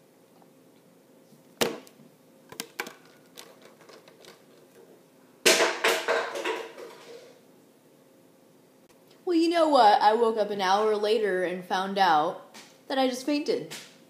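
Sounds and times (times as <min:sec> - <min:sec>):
rustling and clatter: 0:02.7 - 0:04.9.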